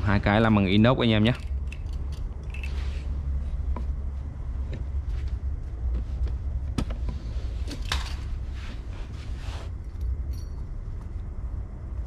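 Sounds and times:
steady low rumble: 0.0 - 12.0
light metal hardware clicks: 1.1 - 2.8.

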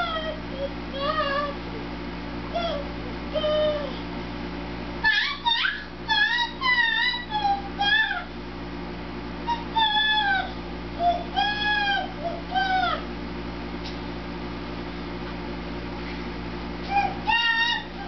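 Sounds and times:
baby squealing: 5.1 - 8.3, 16.9 - 18.0.

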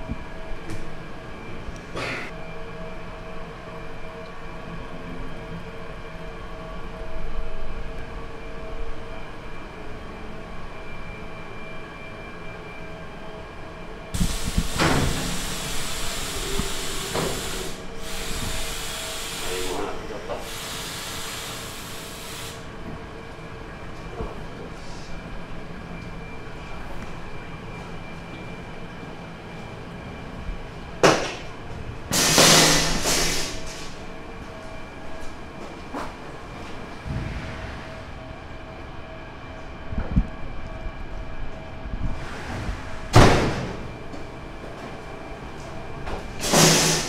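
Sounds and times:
machinery hum: 0.0 - 47.0
loud hiss of steam: 14.2 - 22.7, 32.1 - 34.0, 46.4 - 47.0
low machine hum: 33.6 - 47.0.

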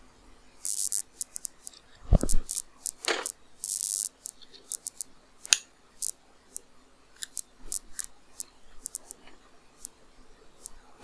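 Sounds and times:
keyboard and mouse clicks: 7.2 - 8.1.

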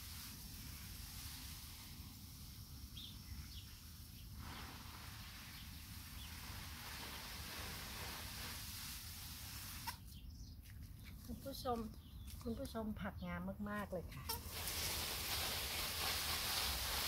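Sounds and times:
hose nozzle spraying water: 4.3 - 10.9, 14.3 - 17.0.

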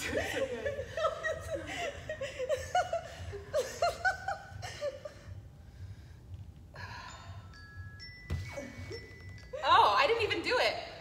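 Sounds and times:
woman laughing: 0.0 - 5.3
woman breathing heavily: 5.1 - 9.5.

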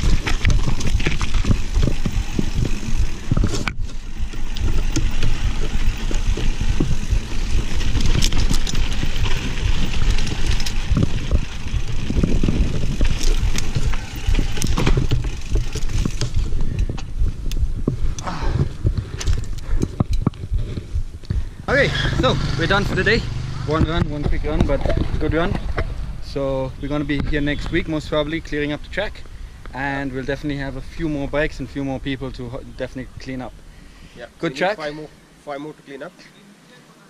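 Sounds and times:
bike rattling and knocking: 0.0 - 29.3
tyres crunching over gravel: 0.0 - 33.6
wind buffeting microphone: 0.0 - 34.2.

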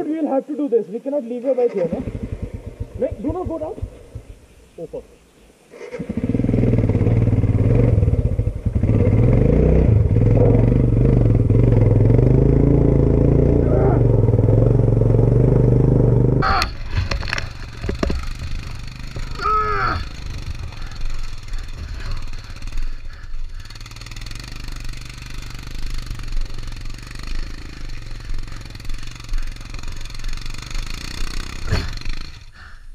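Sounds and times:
motorcycle engine revving: 1.7 - 5.0, 5.7 - 32.8
stones clicking and knocking: 16.6 - 19.4.

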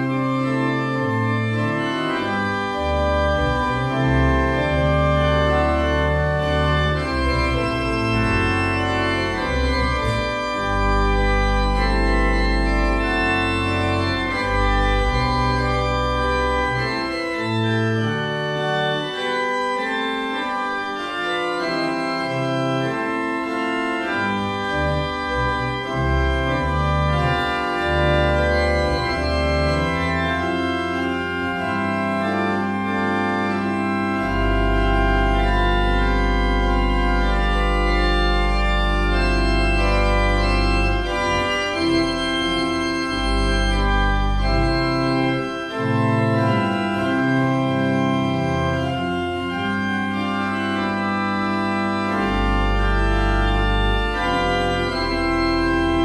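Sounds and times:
church organ playing chords: 0.0 - 56.0
deep organ bass note: 24.0 - 56.0.

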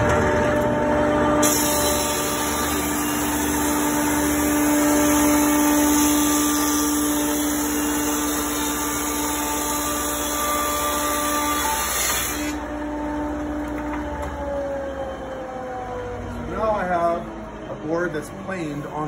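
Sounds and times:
planer motor hum: 0.0 - 19.0.

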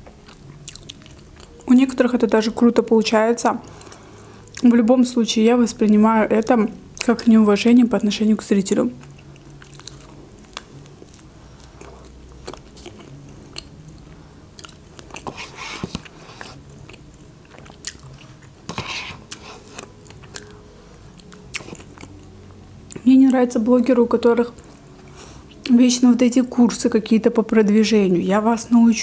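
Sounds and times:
woman chewing food: 0.0 - 1.7, 3.6 - 4.7, 9.0 - 23.0.

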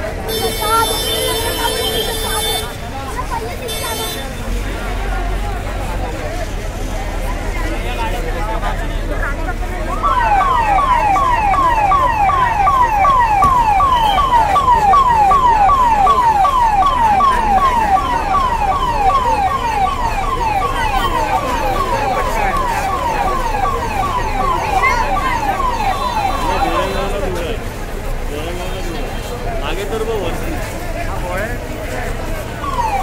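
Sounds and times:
siren wailing: 9.8 - 27.2, 32.6 - 33.0.

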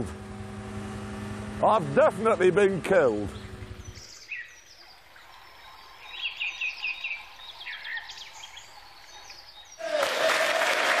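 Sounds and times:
faint outdoor background noise: 0.0 - 11.0
birds singing: 3.0 - 9.8.

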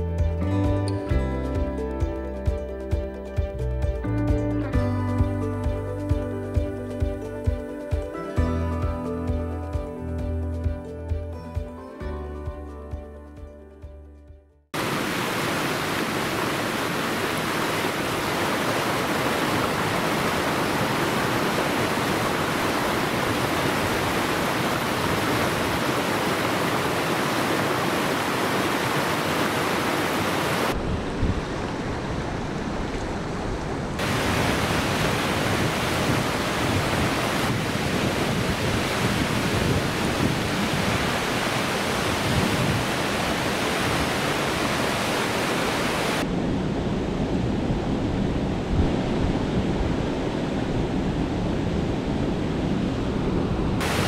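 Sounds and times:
waterfall and rapids rushing: 14.8 - 54.0.

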